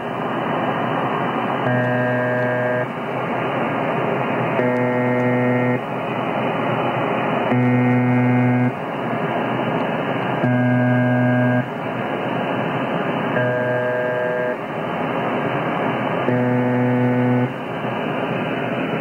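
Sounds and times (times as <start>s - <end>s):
harsh buzz: 1.6s - 3.2s, 4.5s - 5.9s, 7.4s - 8.8s, 10.4s - 11.8s, 13.3s - 14.8s, 16.2s - 17.8s.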